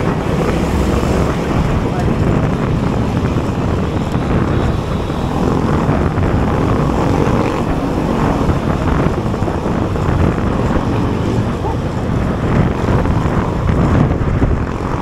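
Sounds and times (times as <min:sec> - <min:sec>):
bicycle road noise: 0:00.0 - 0:15.0
wind rushing over microphone: 0:00.0 - 0:15.0.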